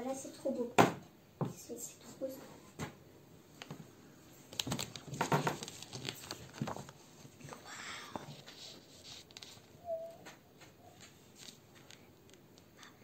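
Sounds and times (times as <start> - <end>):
paper rustling: 4.5 - 7.6, 8.3 - 12.5.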